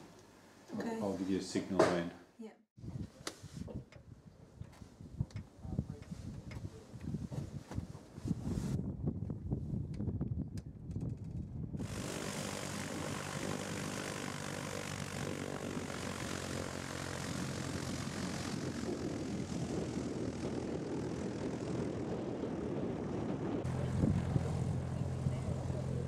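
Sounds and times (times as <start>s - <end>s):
propeller plane engine: 11.2s - 26.0s.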